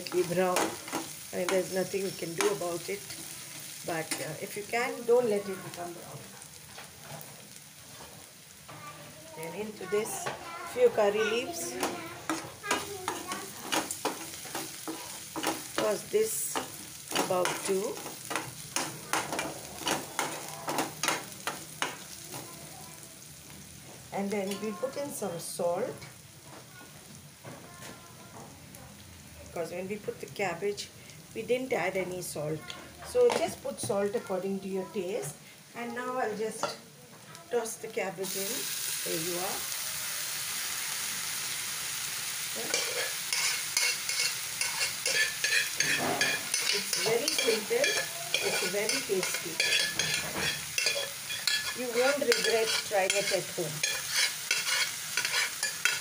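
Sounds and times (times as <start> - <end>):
frying oil sizzling: 0.0 - 56.0
metal spoon scraping a wok: 12.3 - 15.9, 16.5 - 21.9, 42.6 - 56.0.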